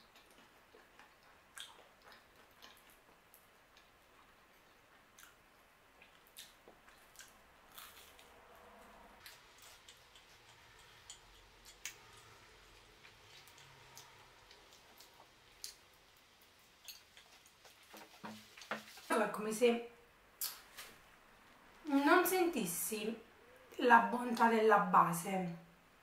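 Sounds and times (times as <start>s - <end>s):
chewing with wet mouth sounds: 0.0s - 8.3s, 9.2s - 17.9s.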